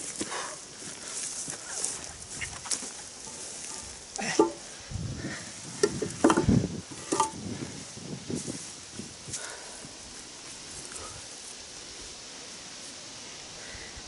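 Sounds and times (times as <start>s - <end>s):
grass rustling: 0.0s - 14.0s
wooden beams knocking and thudding: 4.3s - 4.7s, 5.8s - 7.4s.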